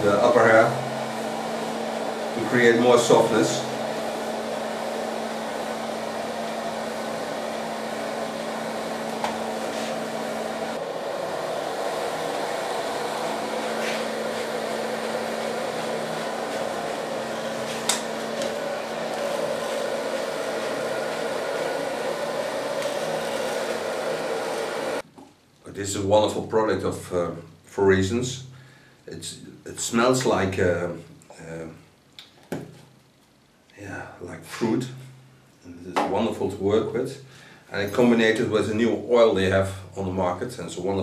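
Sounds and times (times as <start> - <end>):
hair dryer blowing: 0.0 - 25.1.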